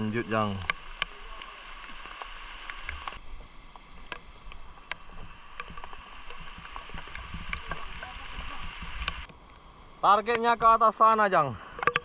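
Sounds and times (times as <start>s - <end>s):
water splashing and sloshing: 0.4s - 9.6s.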